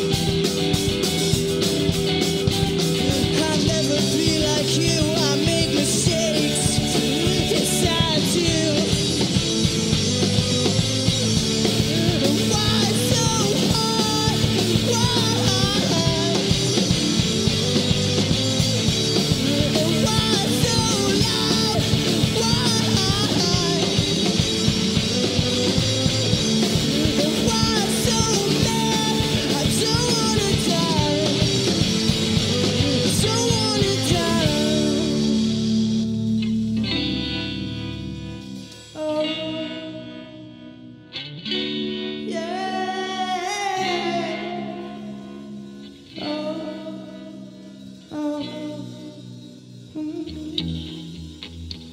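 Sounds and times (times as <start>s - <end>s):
drum kit: 0.0s - 39.1s
electric bass: 0.0s - 51.9s
electric guitars: 0.0s - 51.9s.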